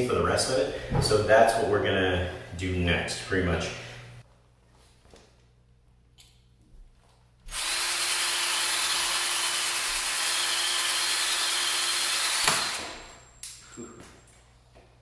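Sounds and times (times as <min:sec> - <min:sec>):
drill boring into concrete: 0:07.5 - 0:13.1.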